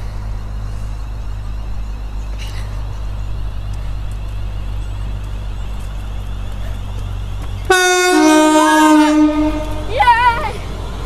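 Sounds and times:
train rumbling: 0:00.0 - 0:11.0
two-tone train horn: 0:07.7 - 0:09.9.

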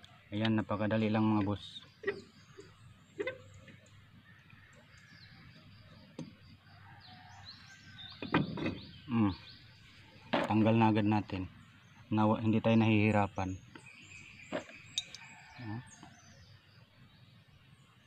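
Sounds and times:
faint birds chirping: 0:00.0 - 0:18.0
brake drum scraping: 0:01.9 - 0:03.8.

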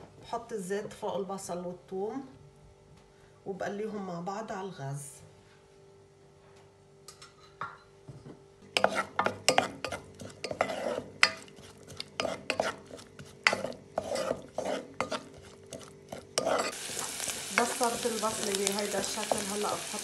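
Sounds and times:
wooden spoon scraping a pot: 0:08.7 - 0:20.0.

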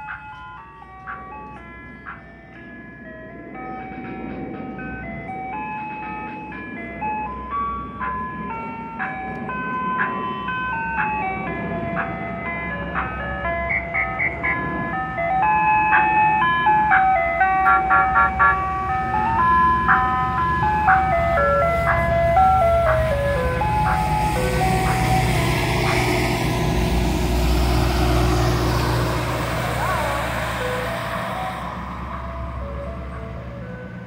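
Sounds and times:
ice cream truck chime melody: 0:00.0 - 0:34.0
truck engine running: 0:09.0 - 0:34.0.

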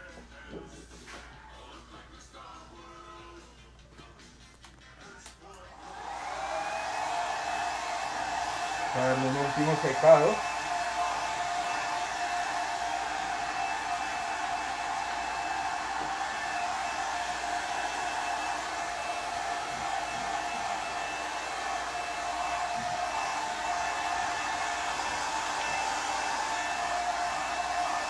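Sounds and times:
hair dryer blowing: 0:05.7 - 0:28.0.

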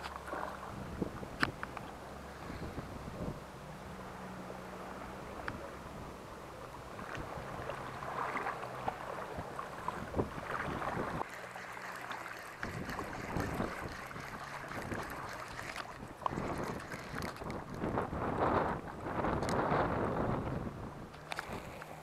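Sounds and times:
boat engine hum: 0:00.0 - 0:22.0
wind on microphone: 0:00.6 - 0:01.7, 0:02.4 - 0:03.5, 0:06.8 - 0:11.3, 0:12.6 - 0:22.0.

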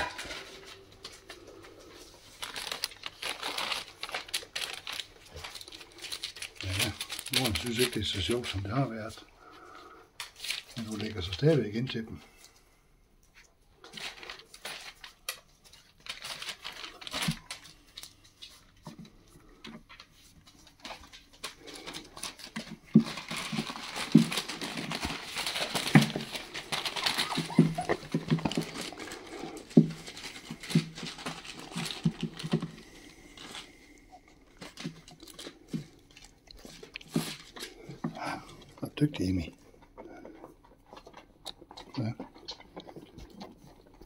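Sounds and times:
puppy noises: 0:00.0 - 0:10.1, 0:19.1 - 0:44.0
newspaper crinkling and rustling: 0:00.0 - 0:12.6, 0:13.4 - 0:39.5
puppies pattering steps: 0:00.0 - 0:44.0.

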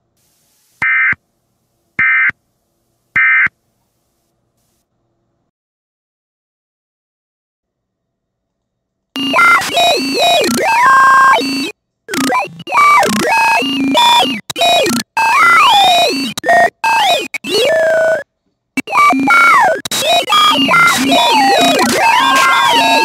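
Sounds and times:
noisy hiss: 0:00.0 - 0:05.3
distorted synthesizer warbling: 0:09.2 - 0:23.0.

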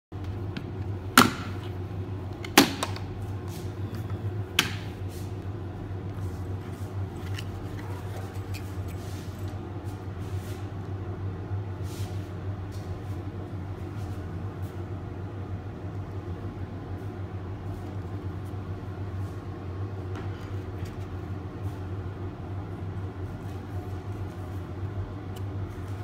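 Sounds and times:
steady low hum: 0:00.2 - 0:26.0
faint handling sounds: 0:06.0 - 0:10.7.

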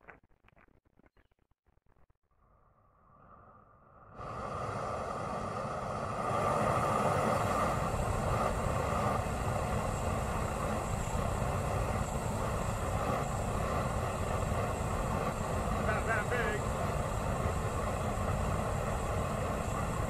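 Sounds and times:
flamethrower jet rushing: 0:04.1 - 0:20.0.

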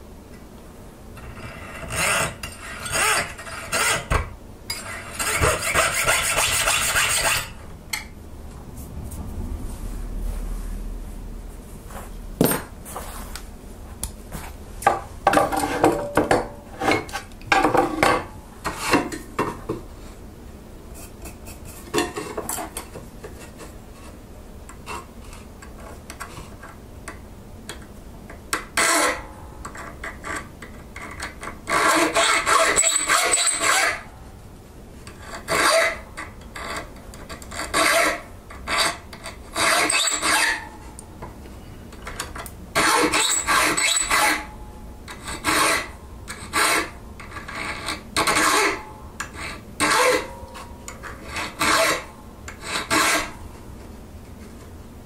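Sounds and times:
file scraping steel: 0:01.2 - 0:08.1, 0:16.7 - 0:19.2, 0:28.6 - 0:34.1, 0:35.0 - 0:41.0, 0:42.1 - 0:53.4.

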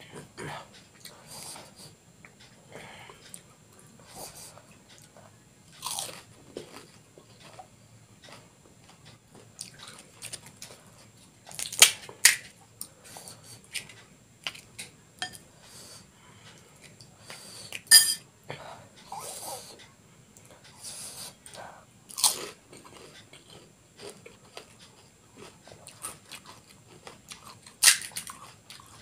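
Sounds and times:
crunching and chewing crisp shells: 0:04.9 - 0:13.0, 0:21.5 - 0:29.0.

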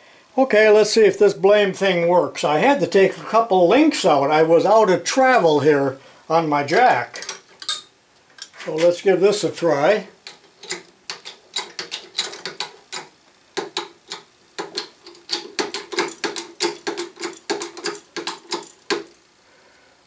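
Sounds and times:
hydraulic jack pumping clicks: 0:10.3 - 0:19.2.

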